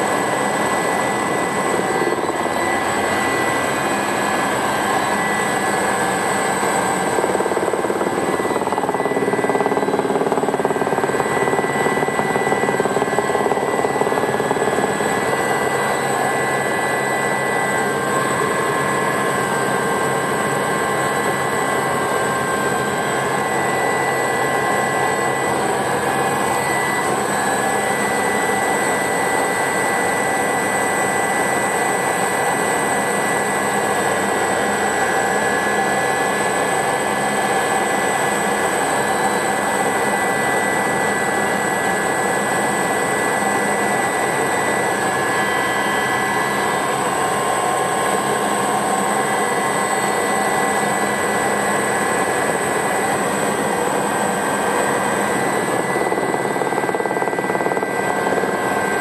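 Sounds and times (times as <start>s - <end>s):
rotor and airflow rush: 0.0s - 28.9s
helicopter turbine whine: 0.0s - 59.0s.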